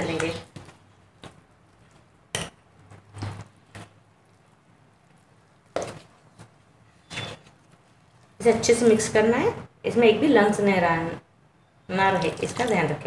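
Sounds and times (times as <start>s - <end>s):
stirring thick batter: 0.0s - 8.4s.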